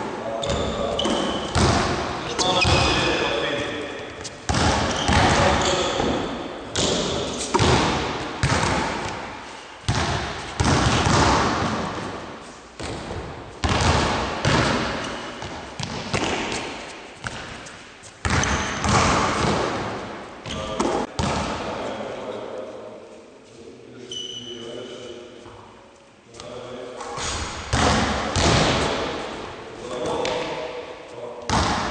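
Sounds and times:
basketballs bouncing on wooden floor: 0.4s - 3.2s, 4.2s - 12.2s, 12.8s - 17.6s, 18.2s - 21.7s, 27.6s - 29.1s, 31.5s - 31.9s
ball thudding off backboard and rim: 0.5s - 3.0s, 4.5s - 9.2s, 9.9s - 12.1s, 18.2s - 19.9s.

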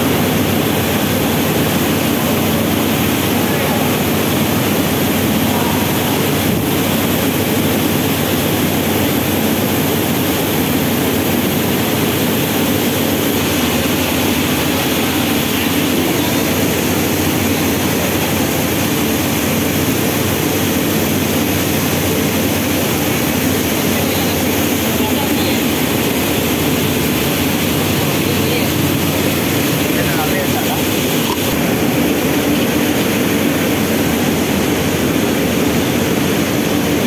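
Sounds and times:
mill machinery running: 0.0s - 37.0s.

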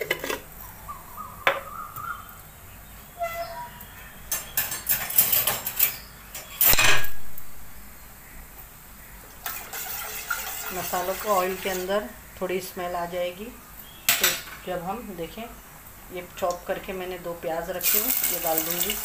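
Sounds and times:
metal utensils clinking: 4.3s - 7.1s, 17.8s - 19.0s.

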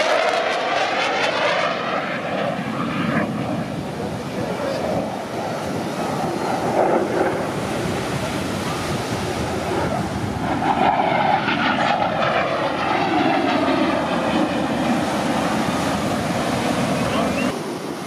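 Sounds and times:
jet fighter flying past: 0.0s - 18.0s.

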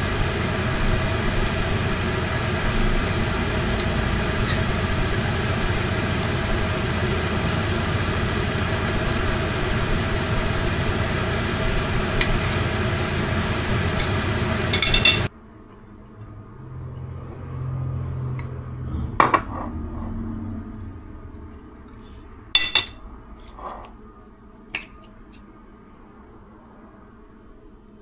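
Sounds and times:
low hum: 0.0s - 23.4s
range hood fan whirring: 0.0s - 28.0s
spoon clinking against plate: 14.7s - 15.2s.

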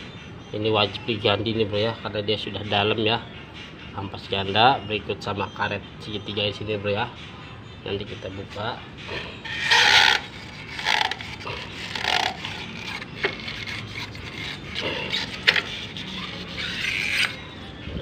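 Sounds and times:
drive belt scraping and rubbing: 9.4s - 17.4s.

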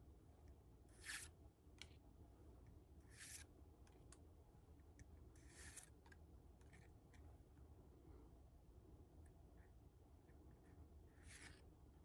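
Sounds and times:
cards swishing: 1.0s - 1.3s, 3.1s - 3.5s.

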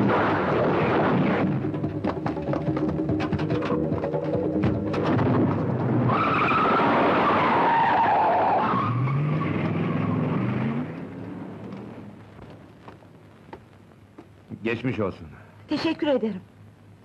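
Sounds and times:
car tyres squealing: 5.9s - 11.1s.

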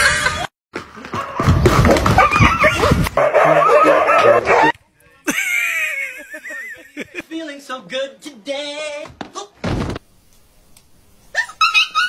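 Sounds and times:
dogs barking and yelping: 1.9s - 4.8s, 11.4s - 12.0s.

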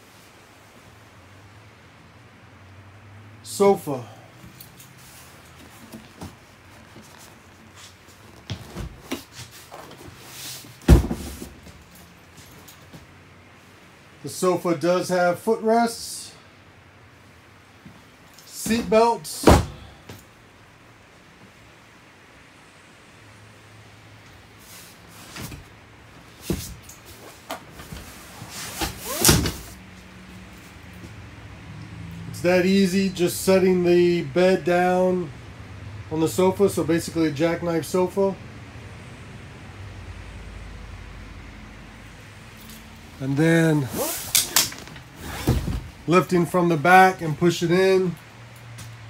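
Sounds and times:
heavy furniture thump: 8.4s - 9.4s, 10.0s - 11.8s, 18.7s - 19.9s, 44.0s - 46.0s
sofa frame clunks and knocks: 10.8s - 11.8s
sofa creak: 26.4s - 29.8s, 43.7s - 46.0s.

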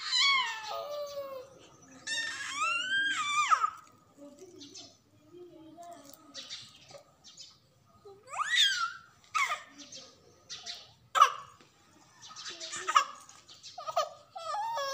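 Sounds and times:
baby squealing and crying: 0.0s - 3.8s, 8.3s - 9.7s, 13.8s - 14.9s.

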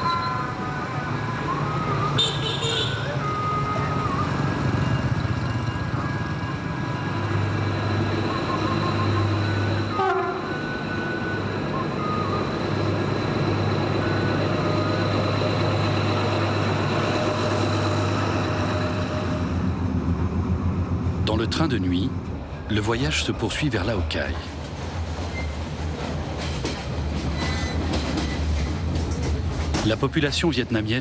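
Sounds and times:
diesel locomotive passing: 0.0s - 31.0s.

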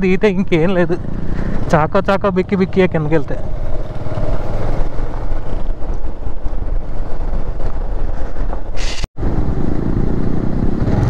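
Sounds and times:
motorcycle engine rumble: 0.0s - 11.0s
wind buffeting microphone: 2.4s - 11.0s
short hiss: 8.8s - 9.1s.

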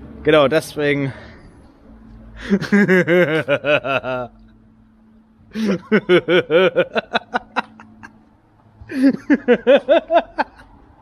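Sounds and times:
man laughing heartily: 2.4s - 4.4s, 5.5s - 10.8s.

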